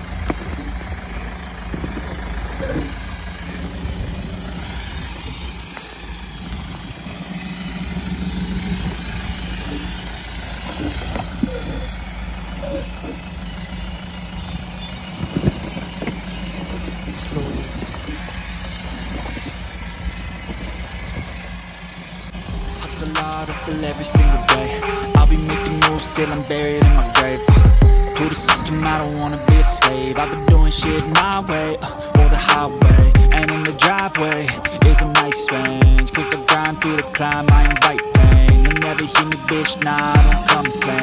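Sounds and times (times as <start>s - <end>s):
engine running at low revs: 0.0s - 41.0s.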